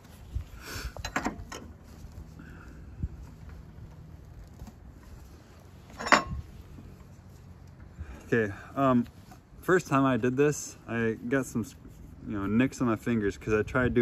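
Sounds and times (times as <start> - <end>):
metal wrenches clinking on saw blade: 5.9 - 6.4.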